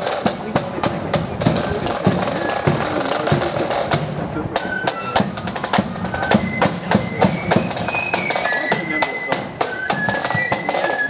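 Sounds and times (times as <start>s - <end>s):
snare drums: 0.0s - 11.0s
flutes playing high tune: 2.1s - 3.4s, 4.5s - 11.0s.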